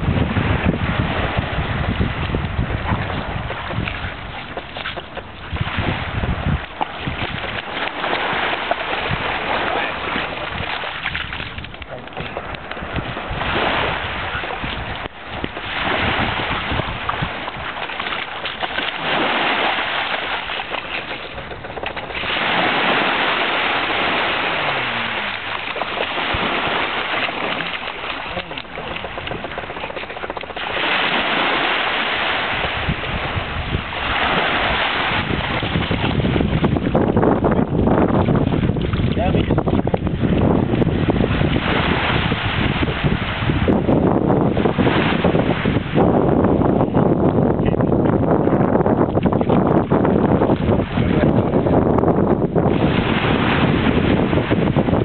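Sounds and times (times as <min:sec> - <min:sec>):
small waves washing on shore: 0:00.0 - 0:55.0
wind on microphone: 0:00.0 - 0:55.0.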